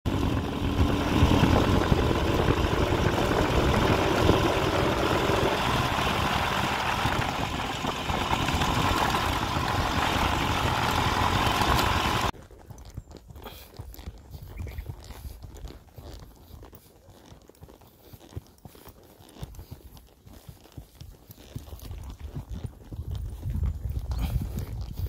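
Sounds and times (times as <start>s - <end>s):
motorcycle engine running: 0.0s - 12.3s, 24.2s - 25.0s
riding noise: 0.1s - 12.3s.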